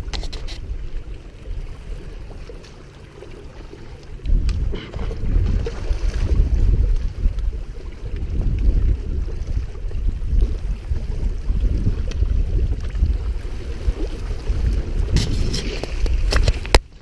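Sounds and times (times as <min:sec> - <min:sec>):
wind buffeting microphone: 0:04.0 - 0:17.0.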